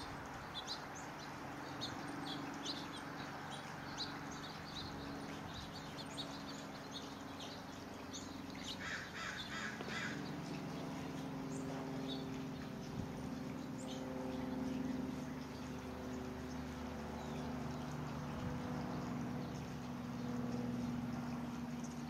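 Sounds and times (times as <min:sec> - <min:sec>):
birds chirping: 0:00.0 - 0:22.0
steady low hum: 0:00.0 - 0:22.0
harsh low bird calls: 0:08.6 - 0:10.9.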